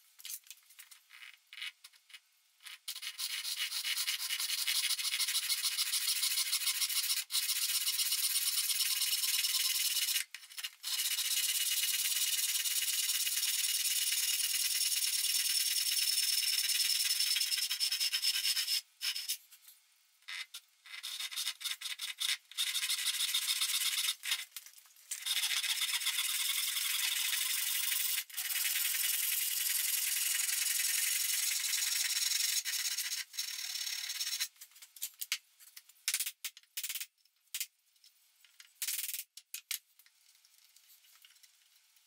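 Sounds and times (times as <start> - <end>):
small clicks and knocks: 34.6 - 42.0.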